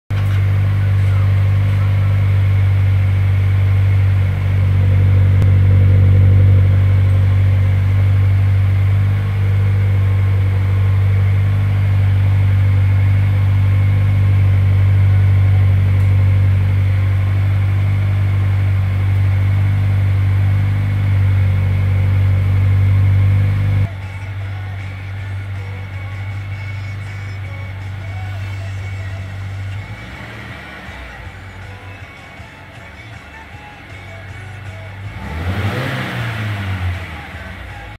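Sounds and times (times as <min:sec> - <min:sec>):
quiet engine idle: 0:00.1 - 0:37.9
loud car exhaust at high revs: 0:01.4 - 0:23.9, 0:29.8 - 0:31.2, 0:35.0 - 0:37.7.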